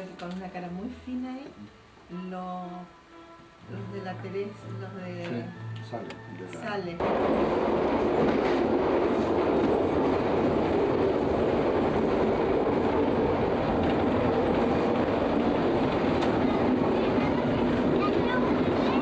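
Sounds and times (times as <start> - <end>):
train wheels running on rails: 7.0 - 19.0.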